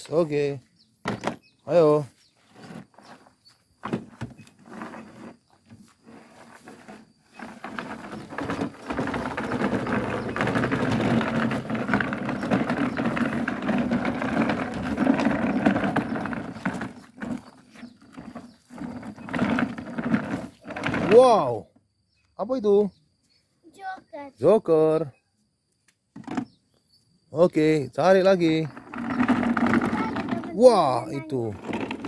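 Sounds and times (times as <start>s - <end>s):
plastic box dragged over ground: 1.1s - 21.4s, 28.0s - 32.0s.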